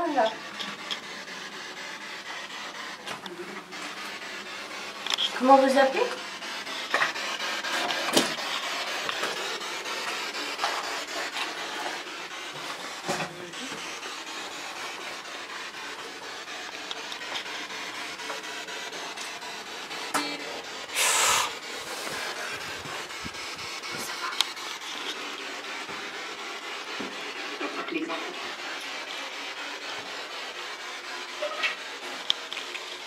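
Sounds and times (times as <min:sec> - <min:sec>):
burst of static: 0:18.7 - 0:32.6.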